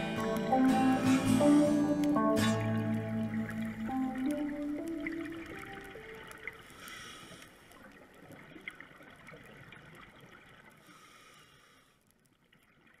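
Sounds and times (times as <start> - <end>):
underwater watery hiss: 6.6 - 7.8, 10.8 - 12.0.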